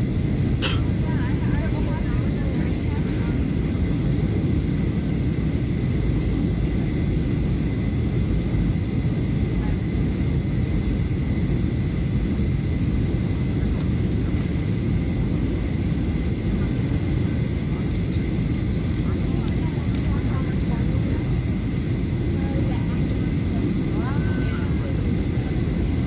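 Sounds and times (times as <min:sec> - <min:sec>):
jet engine rumble: 0:00.0 - 0:26.0
airflow: 0:02.7 - 0:05.1.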